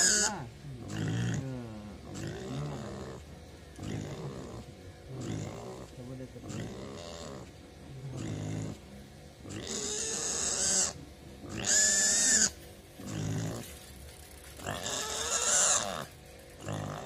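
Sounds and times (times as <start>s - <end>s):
piglet squealing: 0.0s - 0.4s, 9.5s - 13.6s, 14.7s - 16.1s
piglet grunting: 0.0s - 13.7s, 14.6s - 17.0s.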